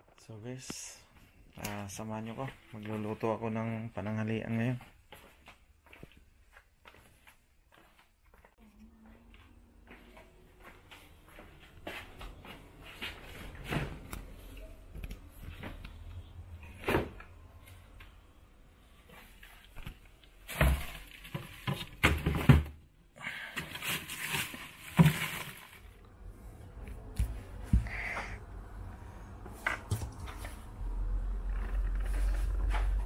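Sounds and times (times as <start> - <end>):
items knocking and clattering: 20.4 - 22.8, 23.6 - 25.9.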